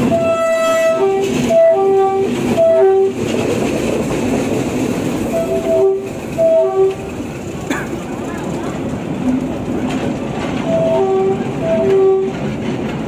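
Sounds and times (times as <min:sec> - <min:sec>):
locomotive horn two-note blasts: 0:00.0 - 0:03.2, 0:05.3 - 0:07.1, 0:10.7 - 0:12.4
train rumble and wheel clatter: 0:00.0 - 0:13.0.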